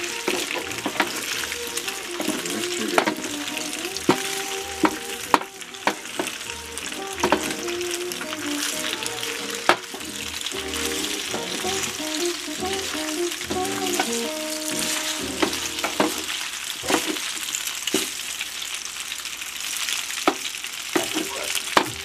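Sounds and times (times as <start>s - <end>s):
food sizzling in a pan: 0.0s - 22.0s
wooden spatulas knocking on pan: 4.1s - 6.3s, 7.2s - 7.6s.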